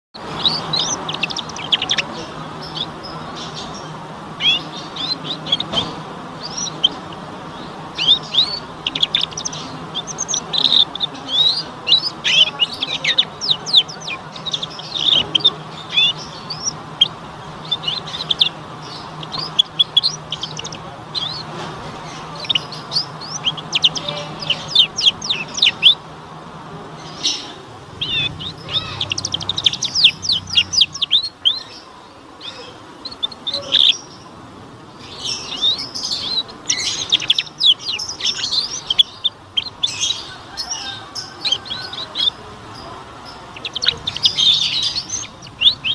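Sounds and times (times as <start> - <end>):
canary twittering: 0.2 - 26.1, 26.9 - 45.9.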